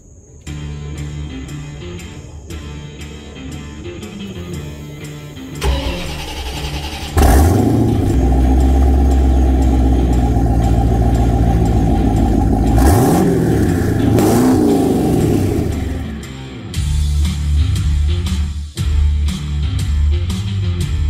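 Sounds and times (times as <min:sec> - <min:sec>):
car engine cranking: 0:05.6 - 0:16.2
car engine idling: 0:05.6 - 0:16.4
car engine revving: 0:05.6 - 0:16.4.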